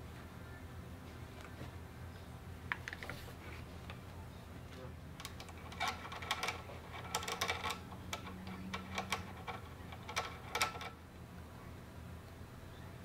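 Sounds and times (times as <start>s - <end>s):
hose fitting clicks and rattles: 5.2s - 11.0s.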